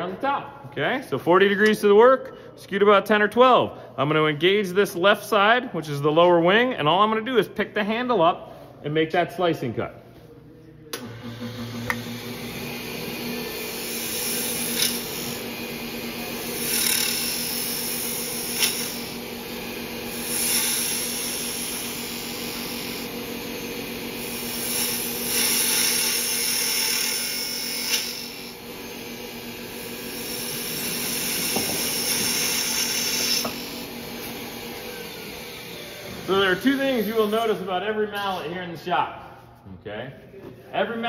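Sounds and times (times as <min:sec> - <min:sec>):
lathe motor humming: 0:11.0 - 0:37.7
gouge cutting spinning wood: 0:11.4 - 0:37.5.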